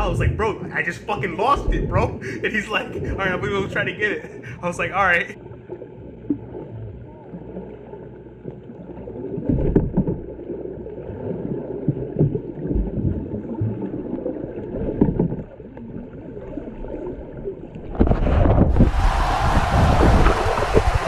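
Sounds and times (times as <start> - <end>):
low underwater knocks and thumps: 0.0 - 2.3, 9.4 - 10.6, 11.8 - 15.8, 17.8 - 21.0
underwater sloshing and gurgling: 0.0 - 19.2.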